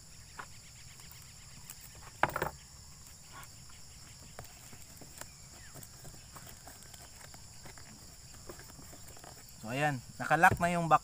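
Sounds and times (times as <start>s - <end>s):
cardboard box rustling and crackling: 4.0s - 10.9s
scratches and taps on cardboard: 4.2s - 9.6s, 10.3s - 10.8s.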